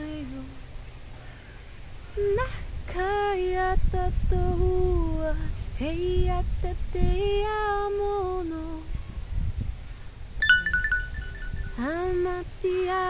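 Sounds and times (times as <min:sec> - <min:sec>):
woman singing unaccompanied: 0:00.0 - 0:00.6, 0:02.2 - 0:08.9.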